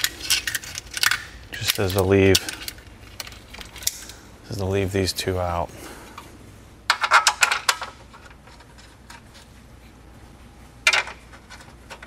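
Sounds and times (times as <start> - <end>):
small parts clicking and rattling: 0.0 - 4.2, 6.9 - 9.5.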